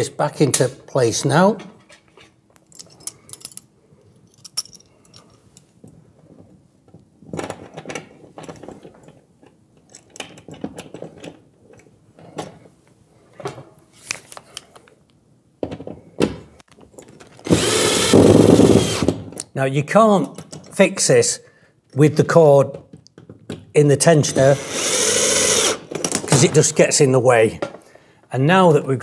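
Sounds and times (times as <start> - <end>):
cordless drill driving screw: 17.4 - 19.2, 24.3 - 25.9
handling clicks and knocks: 20.2 - 20.8, 22.7 - 23.8.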